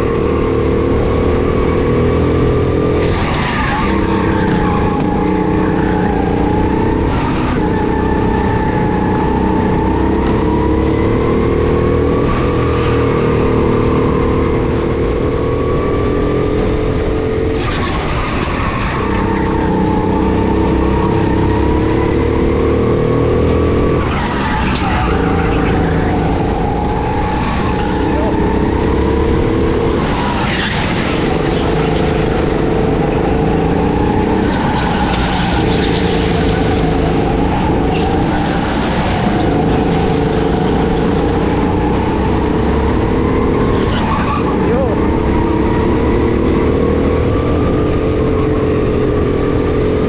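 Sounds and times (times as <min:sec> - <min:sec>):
go-kart engine running: 0:00.0 - 0:50.0.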